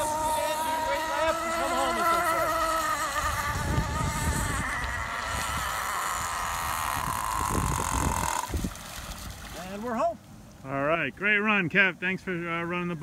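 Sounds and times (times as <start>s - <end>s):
model boat engine high buzz: 0.0s - 8.8s
wind rumble on microphone: 2.0s - 9.6s.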